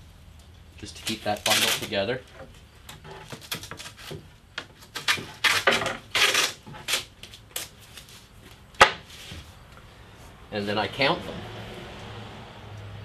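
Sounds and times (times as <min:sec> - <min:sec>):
masking tape pulled off roll: 0:01.0 - 0:02.0, 0:03.1 - 0:04.2, 0:04.8 - 0:08.3
wooden strips clicking and rubbing: 0:01.0 - 0:09.2.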